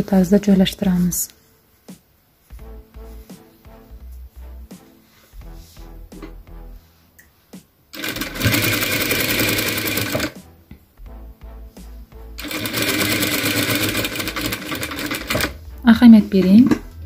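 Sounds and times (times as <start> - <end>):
sewing machine stitching: 8.0 - 10.4, 12.4 - 15.6.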